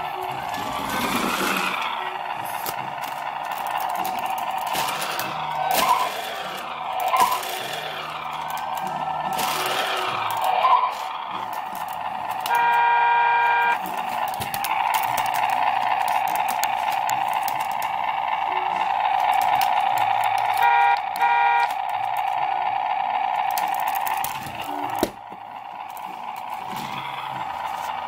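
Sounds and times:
toy car engine running: 0.0 - 28.0
toy car horn honk: 12.3 - 14.1, 20.4 - 22.1.

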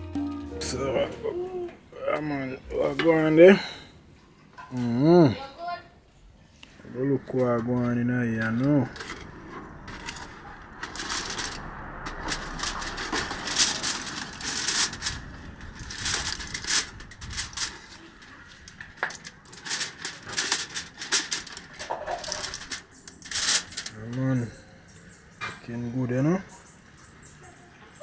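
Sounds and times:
aluminium foil crinkling: 9.8 - 24.1.

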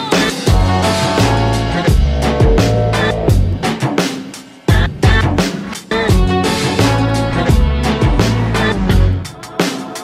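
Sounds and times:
instrumental band music: 0.4 - 5.5.

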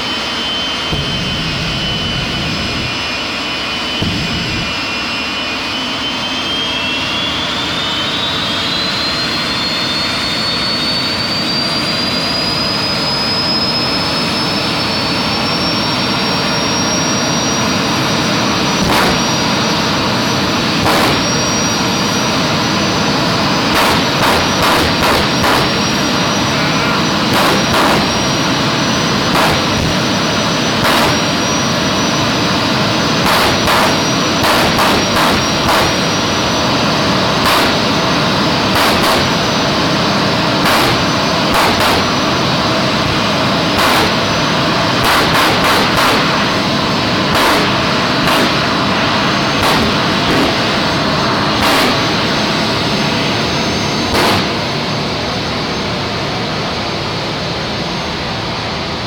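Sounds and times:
jet engine turbine whine: 0.0 - 59.0
sharp bangs: 0.7 - 5.4, 18.6 - 55.0.

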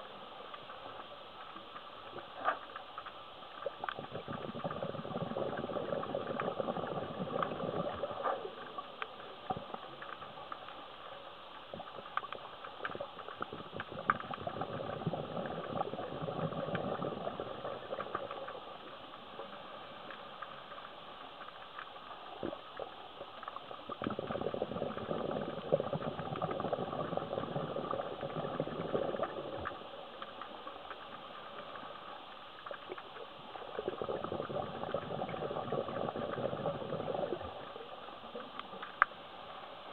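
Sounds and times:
bubbling underwater exhalation: 3.9 - 8.7, 13.4 - 18.6, 23.9 - 29.8, 33.6 - 37.9.

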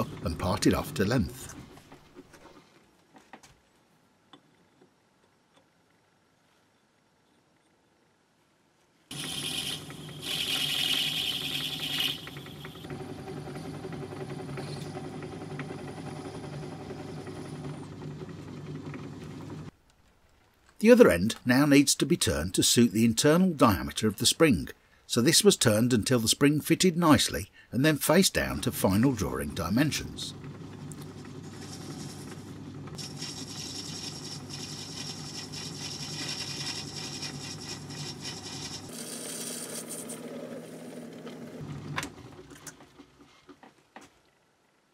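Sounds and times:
lathe tool cutting metal hiss: 9.1 - 12.8
metal lathe humming: 9.1 - 19.0, 30.9 - 41.0.

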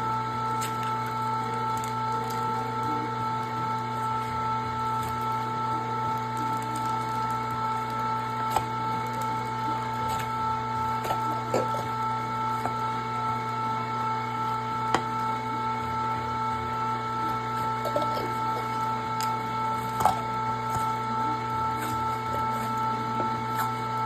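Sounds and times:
electric meat grinder running: 0.0 - 24.0.

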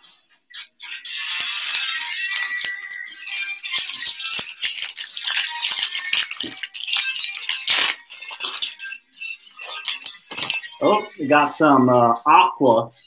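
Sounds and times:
foil wrapper tearing and crumpling: 1.4 - 10.7
crackling rustle with clicks: 1.6 - 10.7.

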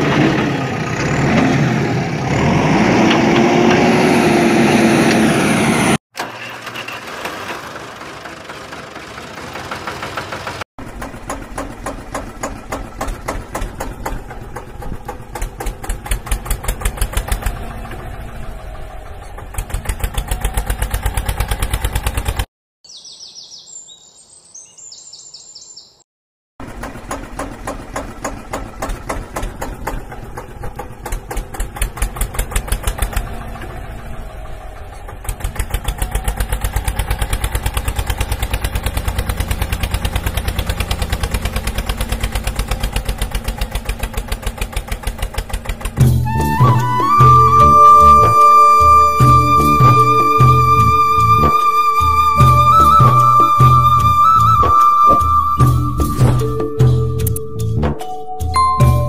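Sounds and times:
tractor engine puttering: 0.0 - 22.5, 26.6 - 59.0
faint bird chirps: 22.9 - 26.0.

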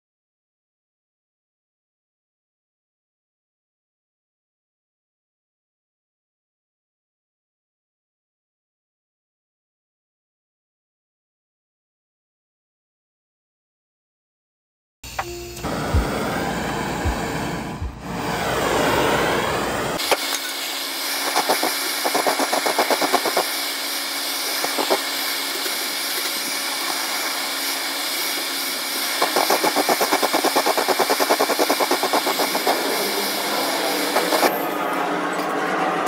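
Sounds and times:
blowtorch hissing: 15.2 - 34.8
blowtorch fluttering: 15.6 - 34.8.

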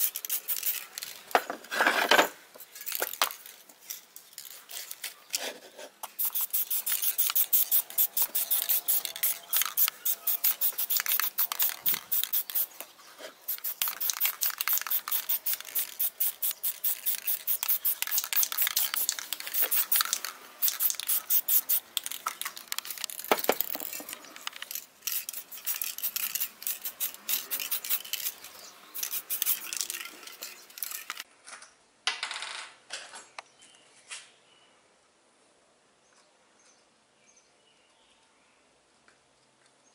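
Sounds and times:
aerosol spray can hissing: 0.0 - 1.1, 6.0 - 12.8, 13.4 - 28.4, 29.0 - 30.0.

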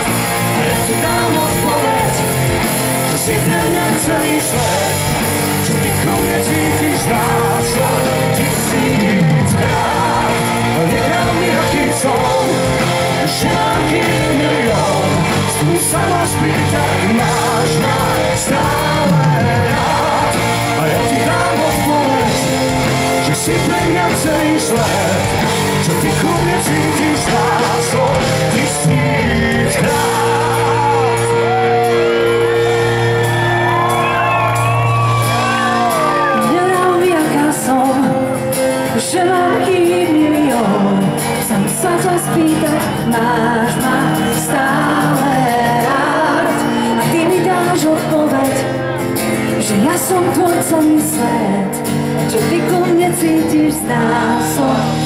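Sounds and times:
audience shouting: 0.0 - 37.5
person singing: 0.0 - 55.0
pop-rock band playing: 0.0 - 55.0.

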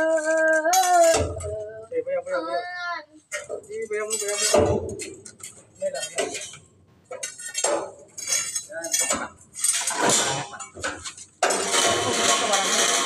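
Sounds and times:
steel pipes clanking: 3.3 - 13.0.

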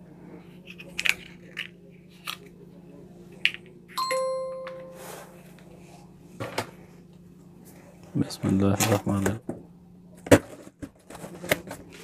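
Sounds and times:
chime-like ringing tone: 4.0 - 5.3.

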